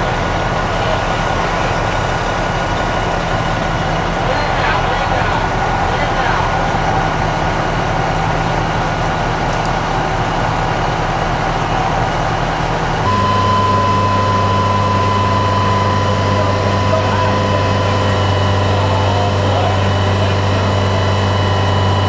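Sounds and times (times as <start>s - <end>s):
fire truck engine running: 0.0s - 22.0s
steady whine: 0.0s - 22.0s.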